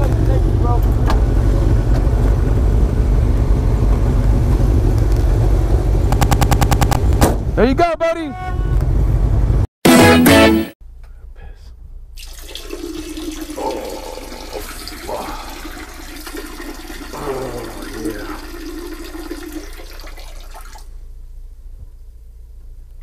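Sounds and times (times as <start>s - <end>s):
urine splashing into toilet water: 12.2s - 20.9s
water drips: 12.2s - 20.9s.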